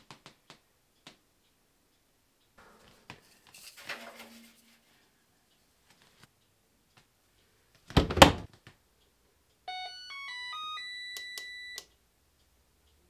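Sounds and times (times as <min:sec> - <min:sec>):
washer door slamming shut: 0:07.9 - 0:08.5
electronic chime of beeps: 0:09.7 - 0:11.8
control panel clicks: 0:09.7 - 0:11.9.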